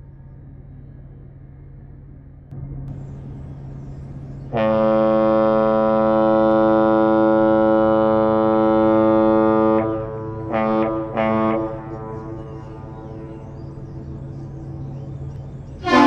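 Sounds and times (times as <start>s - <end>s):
low steady rumble: 0.0s - 16.0s
ship horn blast: 4.4s - 16.0s.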